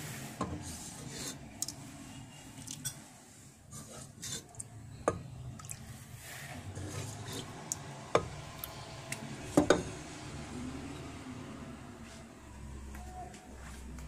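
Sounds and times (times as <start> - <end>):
ladle stirring thick liquid: 0.0 - 10.0.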